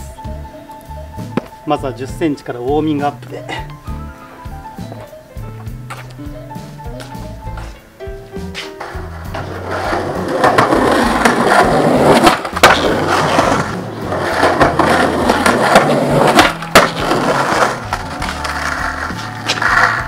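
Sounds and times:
skateboard wheels on concrete: 0:00.0 - 0:20.0
skateboard clack: 0:08.5 - 0:20.0.

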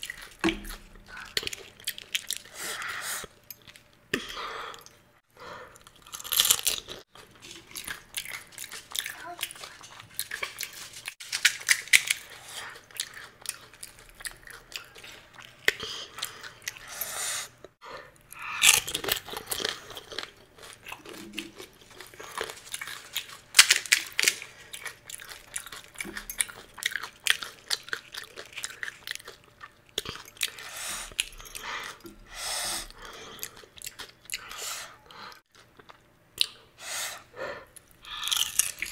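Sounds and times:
wet chewing: 0:00.0 - 0:04.0, 0:05.7 - 0:32.2
crisp shells crunching: 0:18.6 - 0:25.9.

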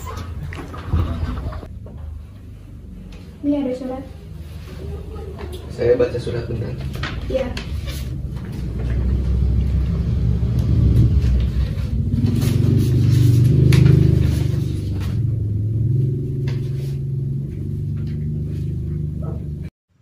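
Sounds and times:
loud low rumble: 0:08.2 - 0:19.7.

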